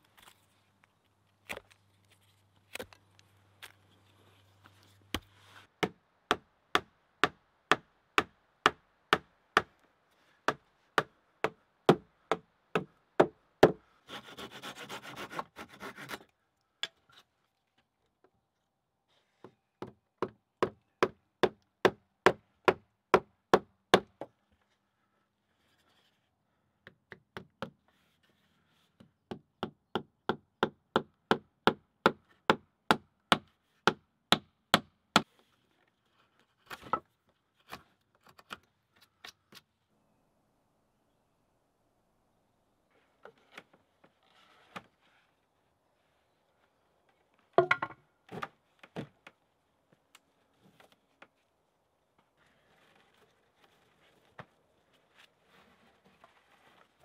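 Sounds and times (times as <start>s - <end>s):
wooden mallet knocking peg: 47.6s - 48.0s
scraping rustle: 52.3s - 57.0s.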